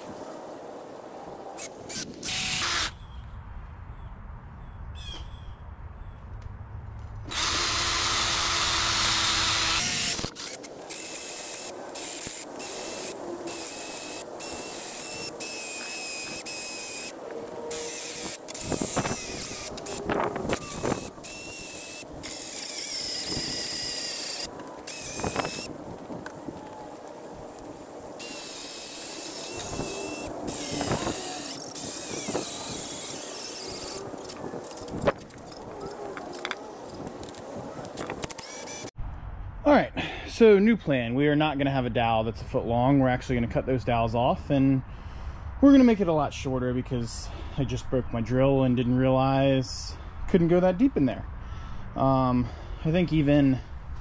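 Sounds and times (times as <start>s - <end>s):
cordless drill boring into wood: 1.6s - 2.9s, 7.3s - 17.1s, 17.7s - 25.7s, 28.2s - 34.9s, 38.2s - 38.9s.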